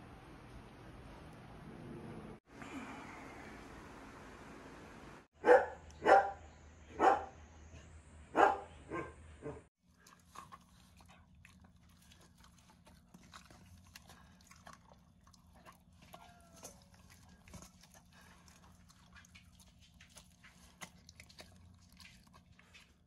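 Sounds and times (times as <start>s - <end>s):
dog smacking and licking: 10.0s - 23.0s.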